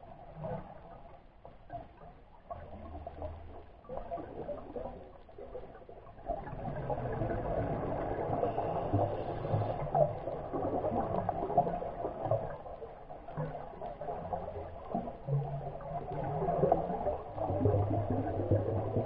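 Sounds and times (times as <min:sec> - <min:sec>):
underwater crackle of clicks: 0:00.2 - 0:19.0.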